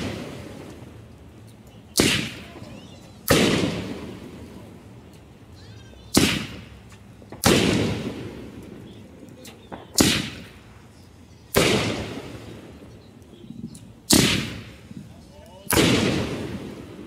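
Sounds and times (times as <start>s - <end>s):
firework bangs with rolling echo: 0.0s - 1.1s, 1.9s - 4.9s, 6.1s - 10.6s, 11.5s - 12.9s, 14.1s - 14.9s, 15.7s - 17.0s
small firework pops: 0.0s - 4.1s, 6.0s - 10.6s.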